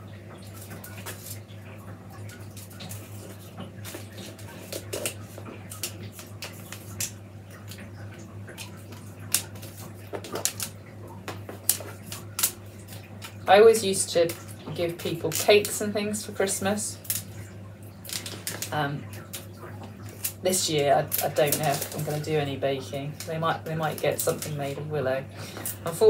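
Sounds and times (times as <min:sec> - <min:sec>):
willow rods rustling and creaking: 0:18.0 - 0:24.8.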